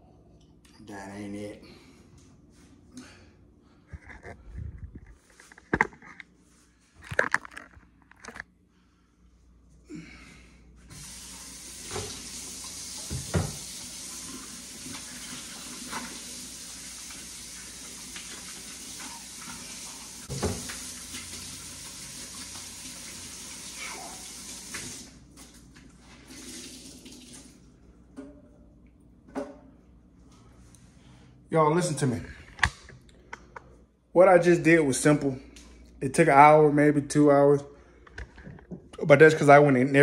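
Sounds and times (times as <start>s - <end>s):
faucet running into metal sink: 10.9s - 25.1s.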